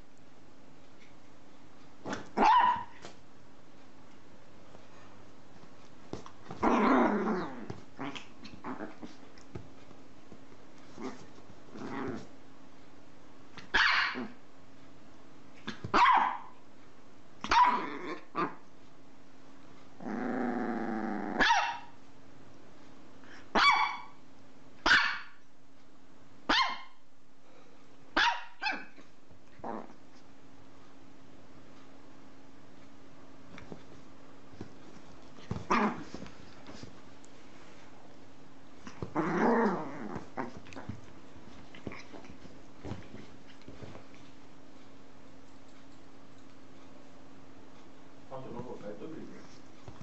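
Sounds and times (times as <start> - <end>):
small dog barking: 2.2 - 3.1, 13.6 - 14.4, 15.7 - 16.6, 17.4 - 18.6, 21.4 - 22.0, 23.5 - 24.2, 24.8 - 25.4, 26.5 - 27.0, 28.2 - 29.0.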